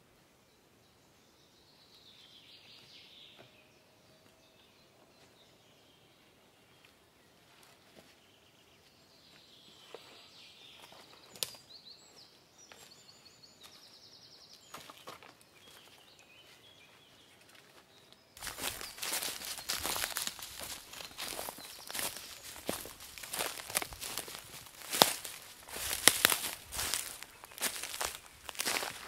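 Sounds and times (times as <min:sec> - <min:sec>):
birds chirping and trilling: 0:00.6 - 0:29.0
footsteps crunching through undergrowth: 0:14.6 - 0:29.0.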